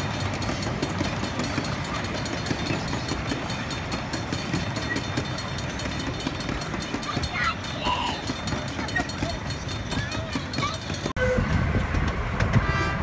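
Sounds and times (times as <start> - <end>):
wheels clicking over rail joints: 0.0 - 12.7
miniature train wheels rumbling: 0.0 - 13.0.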